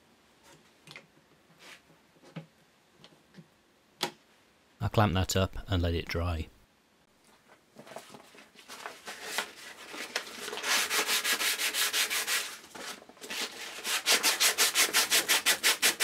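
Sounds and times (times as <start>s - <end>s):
sandpaper rubbing wood: 9.1s - 12.6s, 13.3s - 16.0s.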